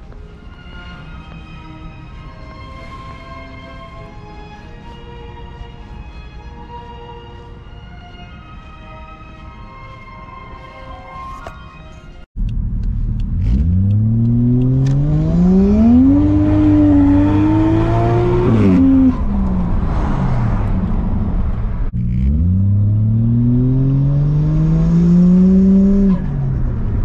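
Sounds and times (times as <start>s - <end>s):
turbocharged car engine revving: 12.4s - 27.0s.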